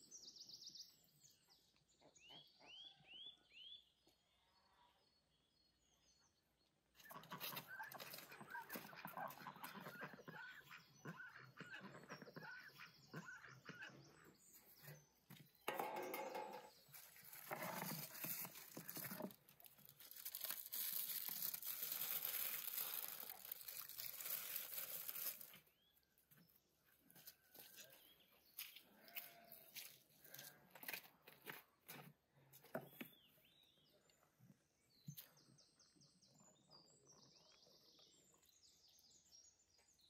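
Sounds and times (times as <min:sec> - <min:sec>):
metal tray scraping and clattering: 0:15.7 - 0:18.2
aluminium foil crinkling: 0:16.9 - 0:25.7.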